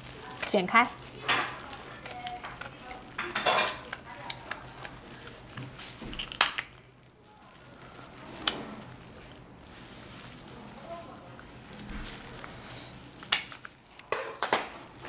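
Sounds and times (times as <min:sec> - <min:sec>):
scissors cutting crab shell: 0:00.2 - 0:06.8.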